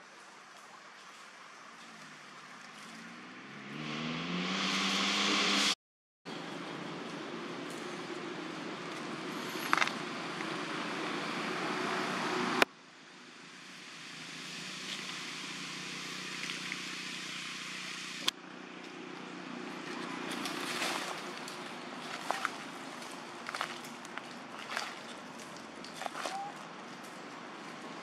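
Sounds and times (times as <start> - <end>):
footsteps in dry leaves: 20.0 - 28.0.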